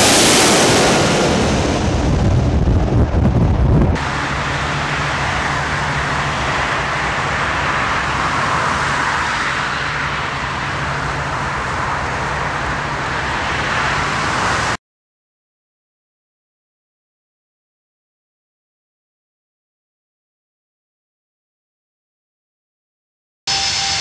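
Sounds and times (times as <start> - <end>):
low hum: 0.0 - 8.7
jet engine rushing: 0.0 - 14.8, 23.5 - 24.0.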